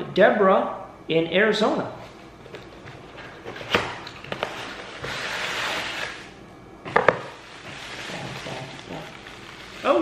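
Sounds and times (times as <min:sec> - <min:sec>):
cardboard tearing and rustling: 0:03.4 - 0:06.3, 0:07.3 - 0:10.0
tissue paper crackling: 0:07.4 - 0:10.0.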